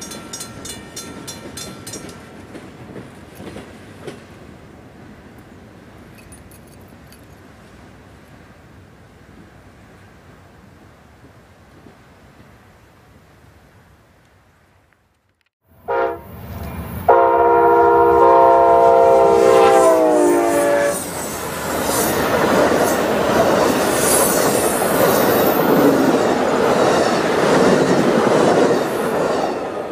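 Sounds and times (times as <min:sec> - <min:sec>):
train wheels rushing on rails: 0:00.0 - 0:07.7, 0:18.2 - 0:29.9
locomotive air horn: 0:15.8 - 0:16.4, 0:17.1 - 0:21.2.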